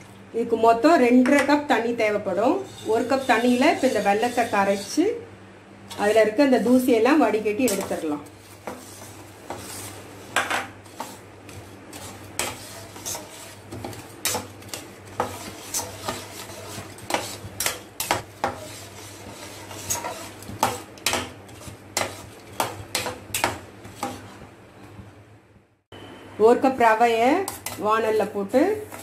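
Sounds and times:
spatula scraping metal pan: 2.4s - 5.0s, 5.9s - 24.5s, 27.4s - 27.8s, 28.8s - 29.0s.

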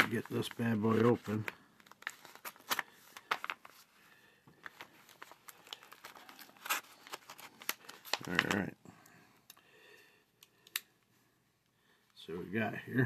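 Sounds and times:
plastic ripping: 0.0s - 3.8s, 4.6s - 8.7s
plastic envelope crinkling: 0.0s - 4.0s, 4.6s - 8.7s.

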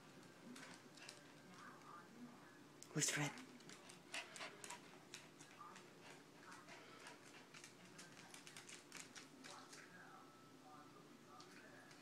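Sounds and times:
claws clicking on hardwood floor: 4.7s - 9.8s.

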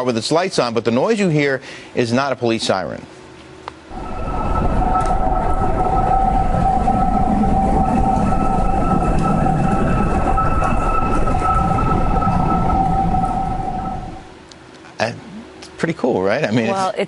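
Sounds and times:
rushing wind: 3.9s - 14.4s
wind whistling in two tones: 3.9s - 14.4s.

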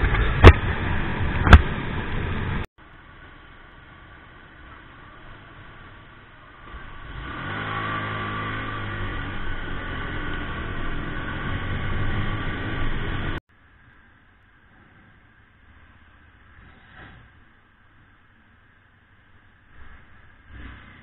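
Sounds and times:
motorcycle engine accelerating: 6.5s - 13.4s.

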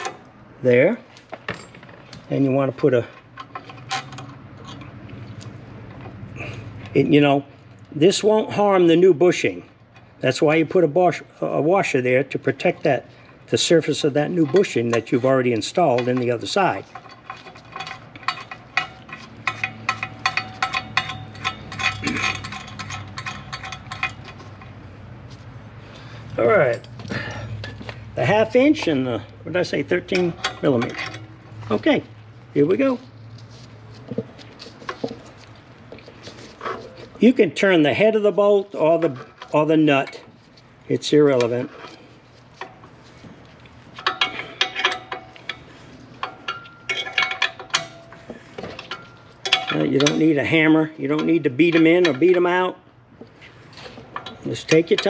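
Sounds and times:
wrenches clicking on bolt: 13.9s - 24.7s, 46.2s - 50.4s, 53.8s - 55.0s.

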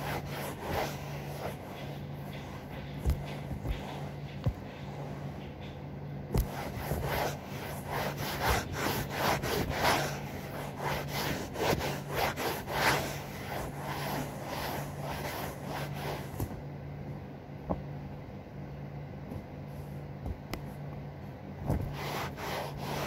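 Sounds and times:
cloth rubbing sofa: 0.0s - 5.4s, 6.3s - 16.6s, 21.6s - 23.0s
steady low hum: 0.0s - 23.0s.

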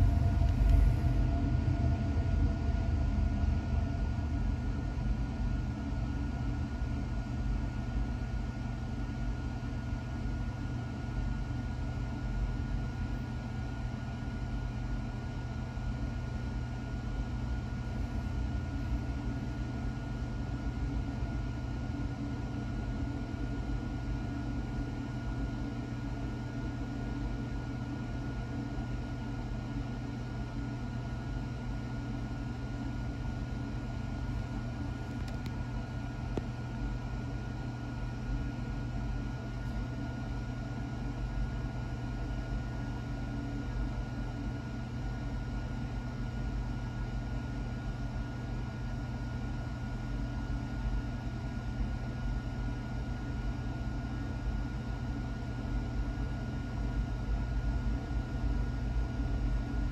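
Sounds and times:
freight train rumbling past: 0.0s - 4.7s
faint high whine: 0.0s - 7.0s.

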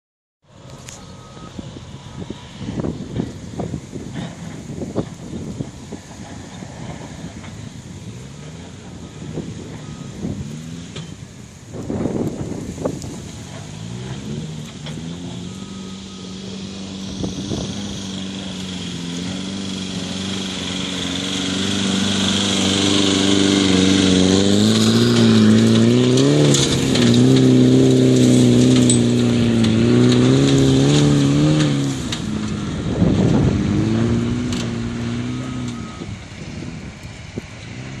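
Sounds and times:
truck engine under load: 0.4s - 38.0s
tyres spinning throwing dirt: 8.4s - 38.0s.

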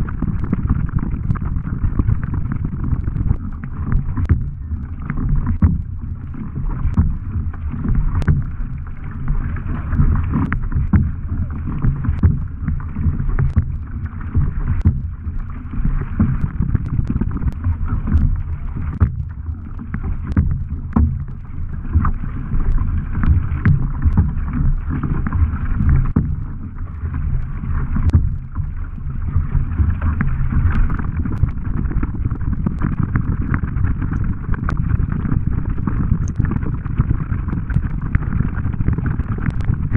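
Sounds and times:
wind buffeting microphone: 0.0s - 7.4s
water rushing and splashing: 0.0s - 39.9s
paddle strokes: 1.8s - 39.9s.

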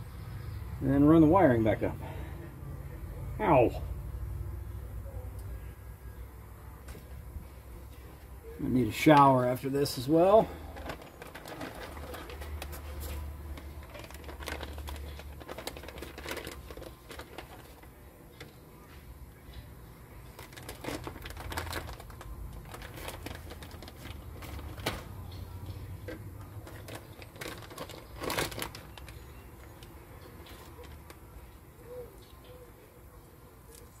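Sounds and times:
low steady hum: 0.0s - 34.0s
plastic bag crinkling: 9.9s - 18.6s, 20.2s - 25.3s, 26.0s - 31.5s.

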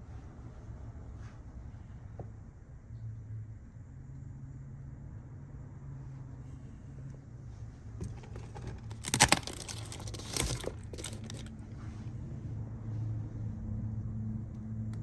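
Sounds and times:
cardboard box rustling: 8.0s - 11.6s.

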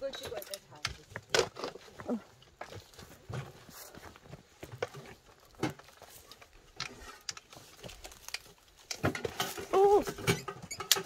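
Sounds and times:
footsteps on rocky ground: 0.0s - 6.7s.

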